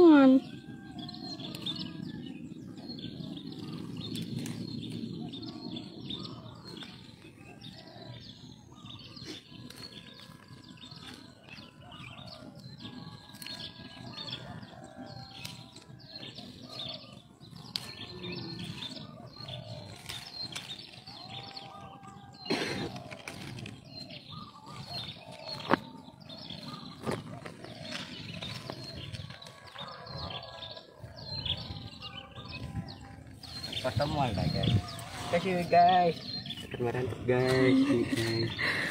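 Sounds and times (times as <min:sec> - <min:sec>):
birds chirping: 0:00.0 - 0:38.9
plant leaves rustling: 0:19.7 - 0:21.8, 0:33.1 - 0:38.9.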